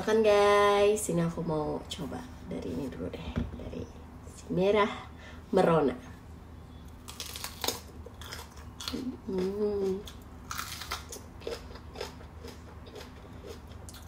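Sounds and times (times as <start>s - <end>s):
chewing: 7.2s - 14.0s
crunching bite into pepper: 10.4s - 12.2s.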